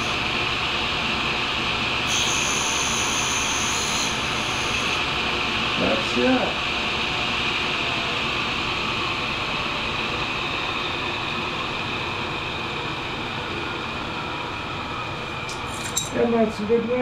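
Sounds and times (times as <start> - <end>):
grinder hissing whir: 0.0 - 1.4, 2.0 - 5.2.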